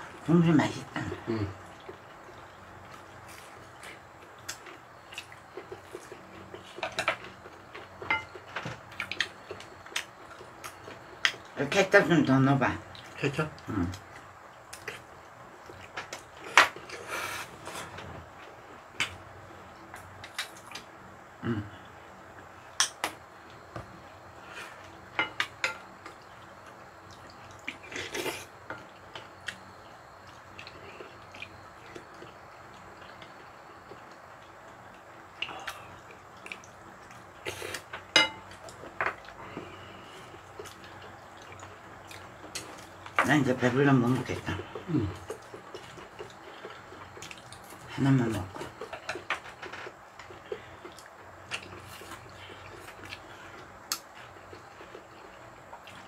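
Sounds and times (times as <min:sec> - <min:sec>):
cutlery clinking against dishes: 0:38.2 - 0:38.5.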